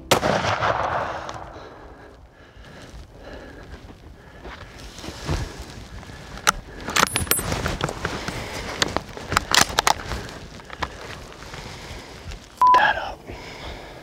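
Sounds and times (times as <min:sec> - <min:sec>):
footsteps crunching through dry grass: 0:01.8 - 0:12.6
carried gear clicking and rattling: 0:04.8 - 0:11.5.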